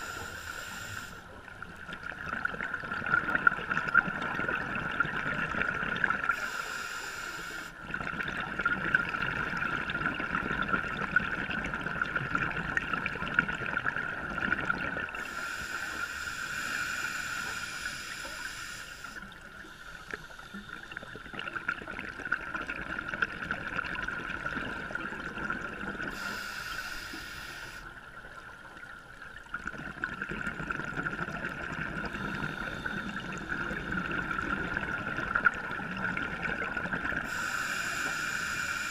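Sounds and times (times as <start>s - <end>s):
underwater watery hiss: 0.0s - 1.4s, 6.0s - 7.8s, 15.1s - 21.7s, 26.0s - 28.0s, 32.0s - 35.5s, 37.1s - 38.9s
regulator bubbling: 29.4s - 37.4s.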